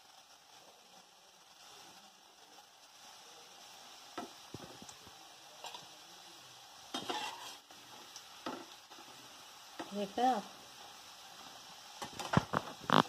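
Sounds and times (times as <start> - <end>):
fries sizzling in hot oil: 0.0 - 13.0
metal spoon scraping pan: 6.9 - 7.6.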